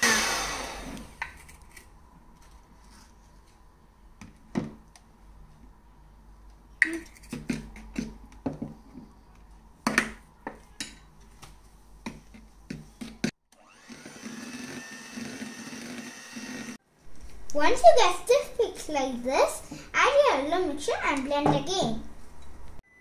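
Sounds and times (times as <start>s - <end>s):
electric hand mixer whipping: 0.0s - 1.1s, 13.6s - 16.8s.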